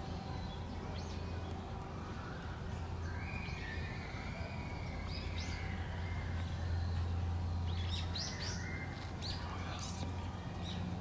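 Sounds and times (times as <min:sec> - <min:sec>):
bird chirps: 0:03.0 - 0:10.0.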